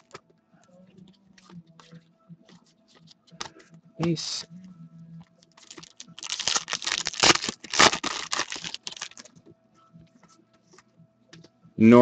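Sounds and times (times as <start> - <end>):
foil wrapper tearing and crinkling: 5.6 - 9.3.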